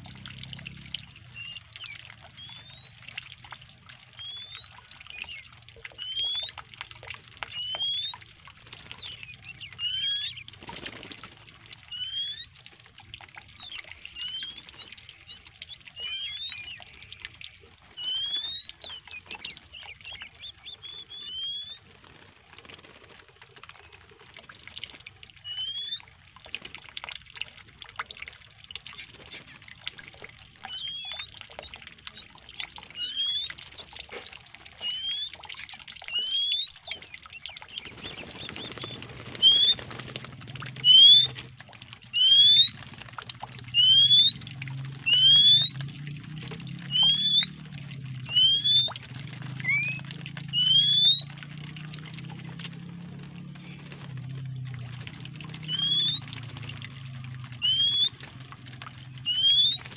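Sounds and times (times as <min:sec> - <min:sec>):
birds splashing and fluttering wings: 0:00.0 - 0:59.9
water running from a tap: 0:00.0 - 0:59.9
bird whistling short rising notes: 0:07.6 - 0:10.5, 0:13.5 - 0:16.9, 0:18.0 - 0:21.8, 0:29.0 - 0:34.0, 0:34.8 - 0:39.8, 0:49.6 - 0:51.3.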